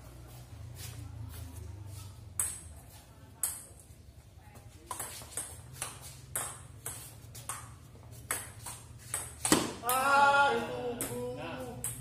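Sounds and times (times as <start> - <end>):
table tennis ball hitting paddles: 2.3 - 3.8, 4.8 - 10.2, 11.8 - 12.0.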